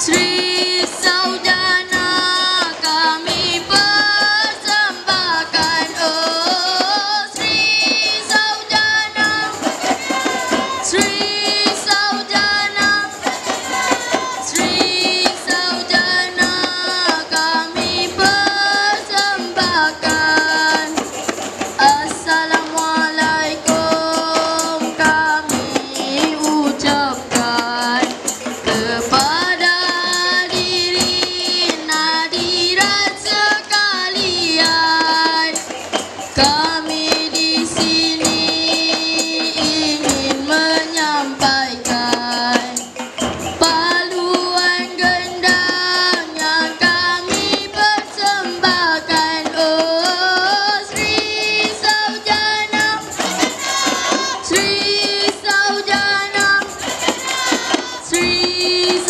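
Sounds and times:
children singing: 0.0s - 59.0s
frame drums: 0.0s - 59.0s
larger drums: 0.0s - 59.0s.

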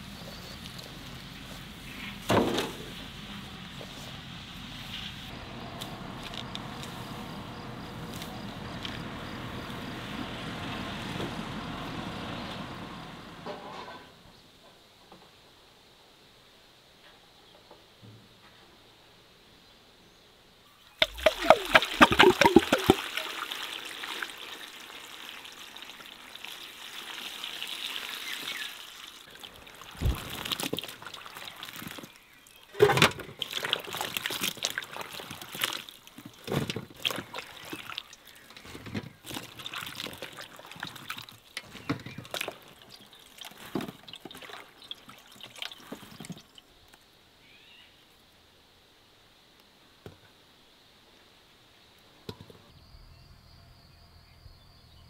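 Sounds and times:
hands sloshing in water: 21.0s - 23.6s, 33.3s - 38.4s, 39.2s - 41.4s, 42.0s - 46.5s
water pouring into metal basin: 21.0s - 32.1s, 33.3s - 38.5s, 39.3s - 46.6s.

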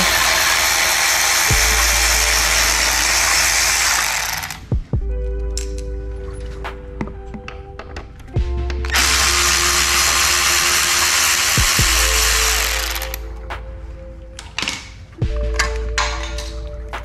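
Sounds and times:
power driver running: 0.0s - 4.8s, 8.4s - 13.3s.

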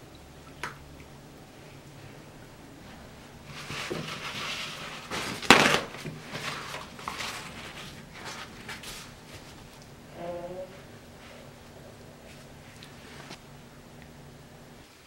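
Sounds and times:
paper towel rustling: 2.8s - 9.8s, 10.6s - 13.5s.

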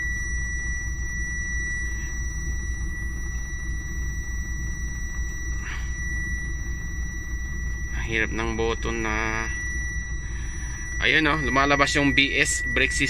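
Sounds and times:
thin high-pitched tone: 5.0s - 13.0s.

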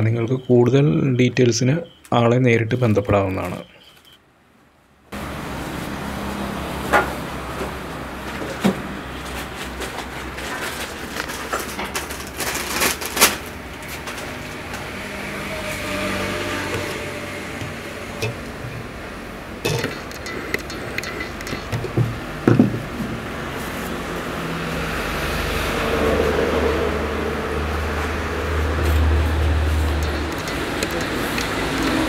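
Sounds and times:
knocks of parts being handled: 16.7s - 19.0s, 19.7s - 23.3s.

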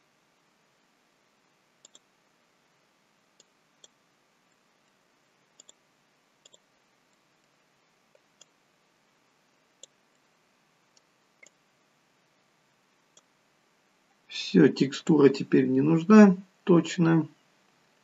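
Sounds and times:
low steady hiss: 0.0s - 18.0s
computer mouse clicking: 1.8s - 2.1s, 3.4s - 4.0s, 5.6s - 5.8s, 6.4s - 8.6s, 9.8s - 10.2s, 10.9s - 11.6s, 13.1s - 13.3s.

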